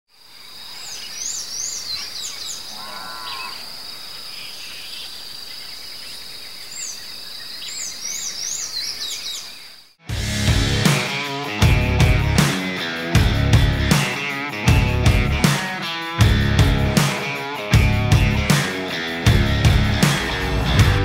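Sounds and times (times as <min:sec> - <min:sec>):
high insect drone: 0:00.2 - 0:07.6
birds calling: 0:00.4 - 0:10.0
rock music with electric guitar: 0:10.0 - 0:21.0.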